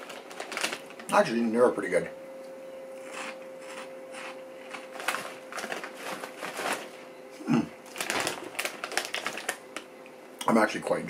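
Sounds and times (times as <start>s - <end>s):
foil bag crinkling: 0.0s - 1.2s, 4.7s - 7.0s, 7.8s - 9.9s
crunchy snack being chewed: 3.0s - 6.8s.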